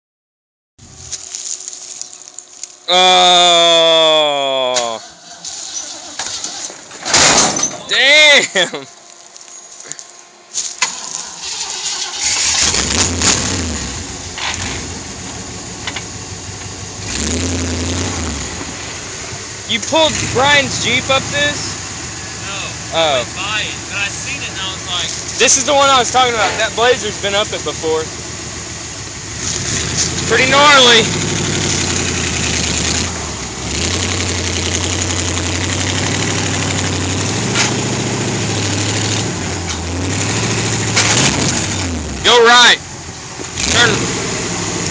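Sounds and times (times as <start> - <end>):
starter motor cranking: 10.8 - 13.7
car engine running and revving: 12.0 - 44.9.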